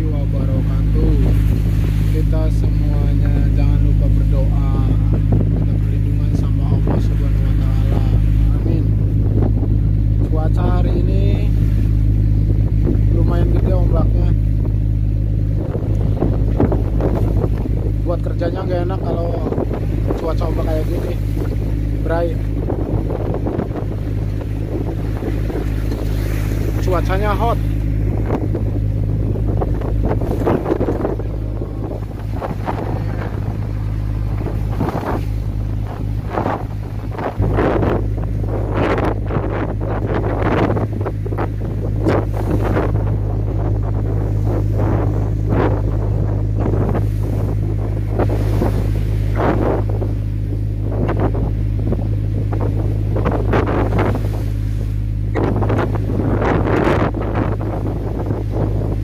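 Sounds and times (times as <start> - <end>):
boat engine humming: 0.0 - 59.0
waves washing against hull: 0.0 - 59.0
wind gusting on microphone: 0.0 - 59.0.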